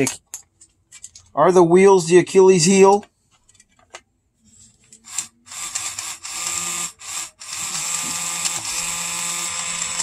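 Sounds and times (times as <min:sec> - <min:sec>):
small electric motor whining: 0:05.1 - 0:10.0.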